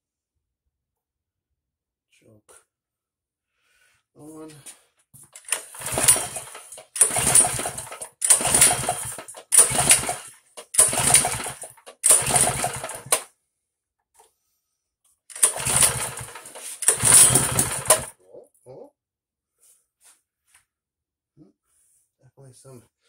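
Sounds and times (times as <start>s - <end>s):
mini bike engine pull-start: 5.4s - 13.3s, 15.3s - 18.1s.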